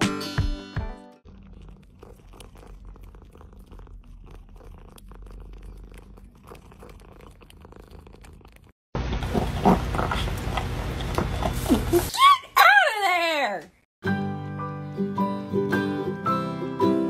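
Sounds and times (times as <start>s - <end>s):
cat purring: 1.3s - 8.8s.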